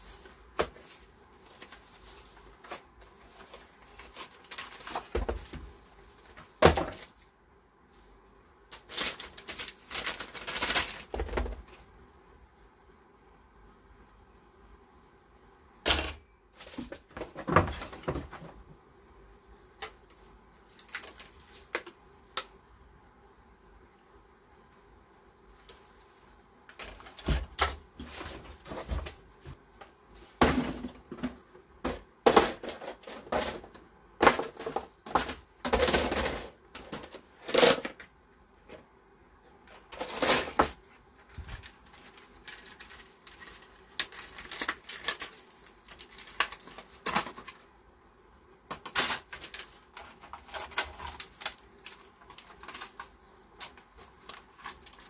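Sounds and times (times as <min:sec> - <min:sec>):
plastic packaging rustling: 0:00.0 - 0:07.3, 0:08.7 - 0:11.8, 0:19.8 - 0:21.9, 0:39.7 - 0:47.7, 0:48.6 - 0:55.0.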